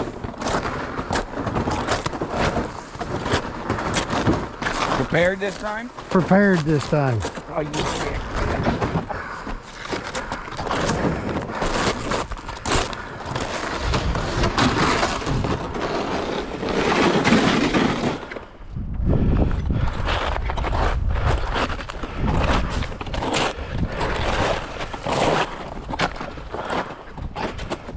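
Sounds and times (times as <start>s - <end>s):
wind rumbling on microphone: 10.3s - 16.7s, 18.5s - 27.9s.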